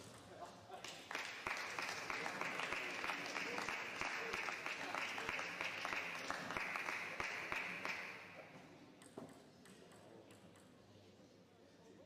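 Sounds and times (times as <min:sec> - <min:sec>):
spectators clapping: 0:00.8 - 0:08.4
table tennis ball tap: 0:09.0 - 0:10.7.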